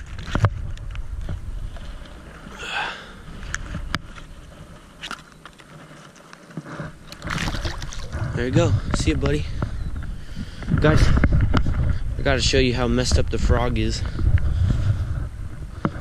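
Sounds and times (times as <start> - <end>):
water splashing and sloshing: 7.0 - 8.5.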